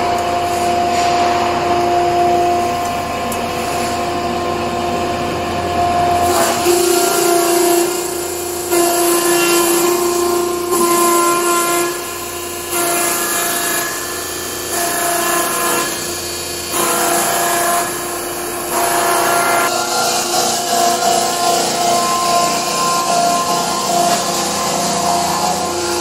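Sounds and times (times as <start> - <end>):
machine hum: 0.0 - 26.0
cutter grinding log: 5.6 - 26.0.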